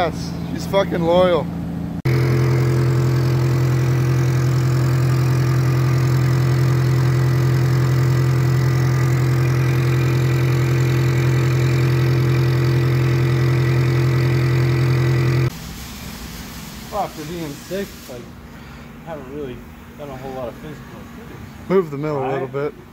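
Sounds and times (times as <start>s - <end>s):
metal lathe humming: 2.1s - 15.5s.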